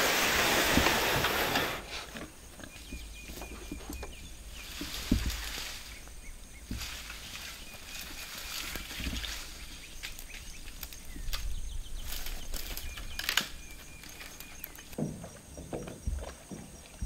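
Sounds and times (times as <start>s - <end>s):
branch dragged through brush: 0.0s - 2.2s, 4.5s - 14.8s
twigs snapping: 4.7s - 15.0s.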